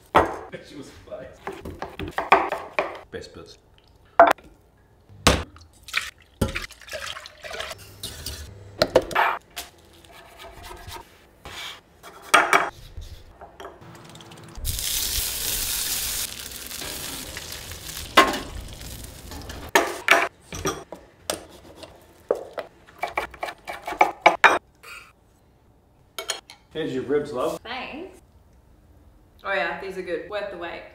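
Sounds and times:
meat sizzling on grill: 14.6 - 19.7.

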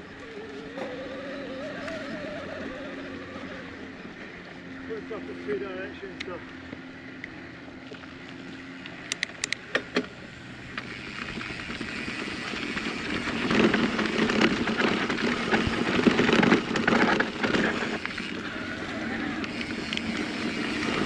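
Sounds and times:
bike tyres on dirt trail: 0.0 - 21.0
sharp clicks: 8.8 - 10.1.

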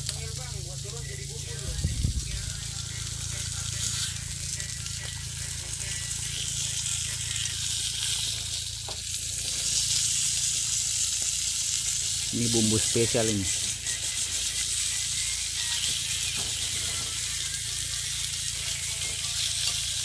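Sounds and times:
low steady hum: 0.0 - 13.0
fish sizzling on a grill plate: 0.0 - 20.0.

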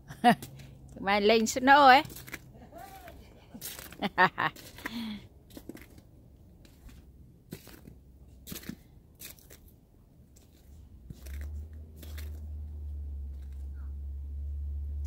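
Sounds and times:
footsteps crunching in snow: 2.0 - 6.0, 6.6 - 9.8, 10.4 - 13.6.

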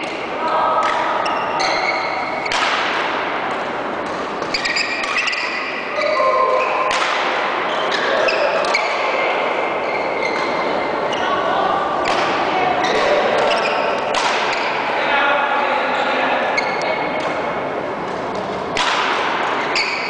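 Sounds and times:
racket hitting shuttlecock: 0.0 - 5.9, 6.6 - 9.0, 12.0 - 14.9, 18.1 - 20.0
shoes squeaking on floor: 1.2 - 2.6, 4.4 - 6.8, 7.7 - 9.1, 9.8 - 11.4, 12.8 - 14.8, 16.5 - 17.0, 19.6 - 20.0.

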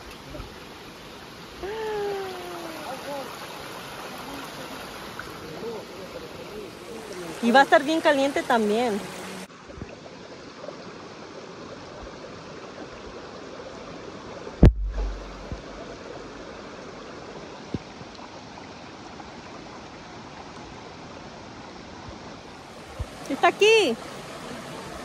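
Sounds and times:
creek water over rocks: 0.0 - 25.0
sharp knock with low rumble: 14.6 - 15.9.

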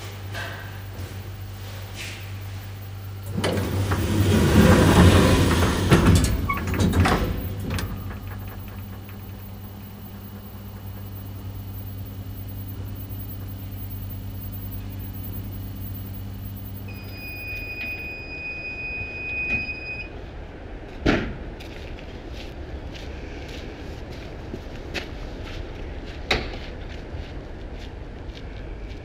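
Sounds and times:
elevator cabin humming: 0.0 - 20.6
elevator door clunk: 3.2 - 20.0
long high electronic beep: 9.8 - 20.1.

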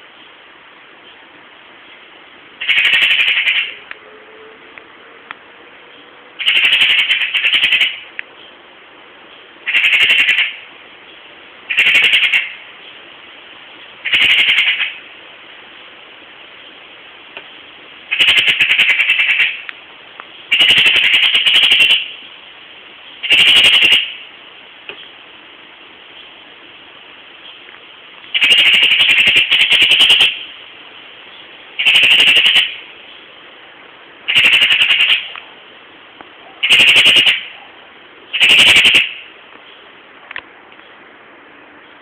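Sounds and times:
magpie rattling chatter: 2.6 - 3.8, 6.4 - 8.1, 9.6 - 10.7, 11.7 - 12.7, 14.0 - 15.1, 18.1 - 19.7, 20.5 - 22.2, 23.2 - 24.2, 28.3 - 30.5, 31.8 - 32.8, 34.3 - 35.4, 36.6 - 37.6, 38.3 - 39.2.

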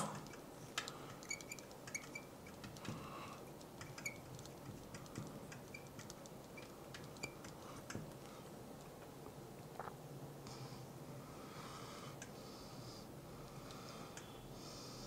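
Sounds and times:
marker pen squeaking on glass: 1.2 - 2.7, 3.8 - 7.5.

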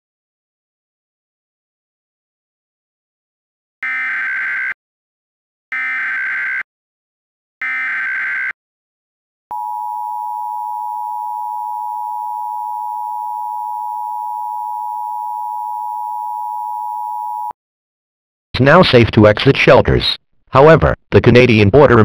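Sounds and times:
screechy digital data tones: 5.8 - 6.6, 7.6 - 8.6
steady attention tone: 9.5 - 17.5.

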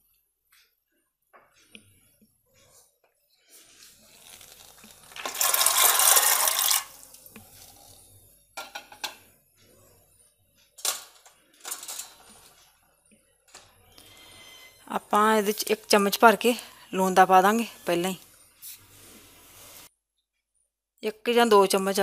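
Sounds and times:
chickpeas rattling and splashing: 4.2 - 7.3
metal dishes clinking: 10.8 - 12.6.

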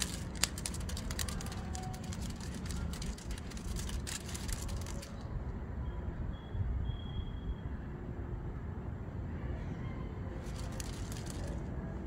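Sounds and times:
light sharp clicks and scratches: 0.0 - 5.3, 10.4 - 11.7
low city rumble: 0.0 - 12.0.

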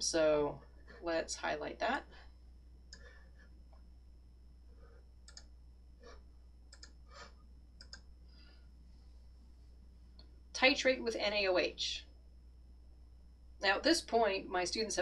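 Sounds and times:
computer mouse and keyboard clicks: 5.3 - 5.5, 6.7 - 8.1.

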